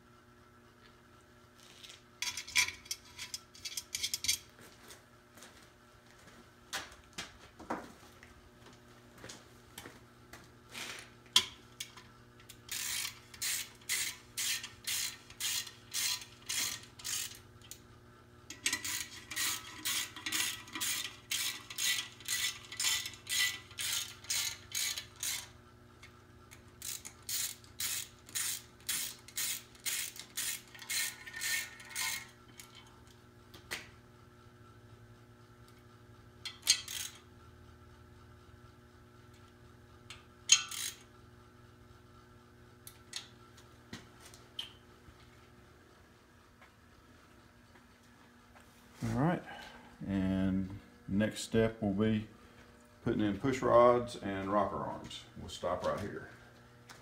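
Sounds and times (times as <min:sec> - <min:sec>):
socket ratchet clicking: 0:26.8 - 0:32.2.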